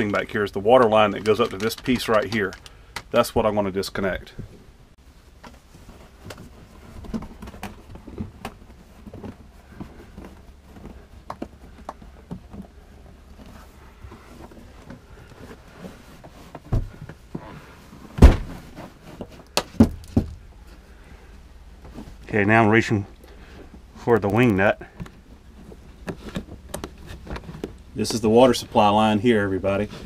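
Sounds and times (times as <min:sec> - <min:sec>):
loud thunk on plastic: 0:18.2 - 0:18.7.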